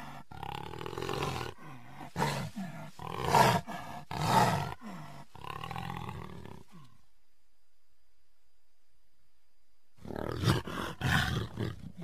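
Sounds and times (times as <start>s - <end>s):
tiger roars: 0.0s - 7.0s, 10.0s - 12.0s.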